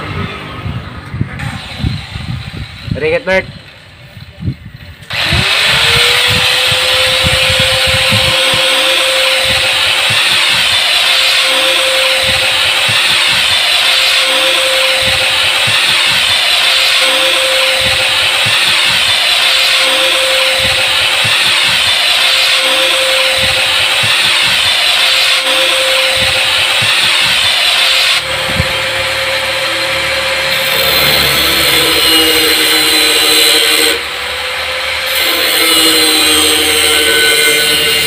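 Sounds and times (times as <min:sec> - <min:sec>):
angle grinder grinding steel: 0:01.4 - 0:38.0.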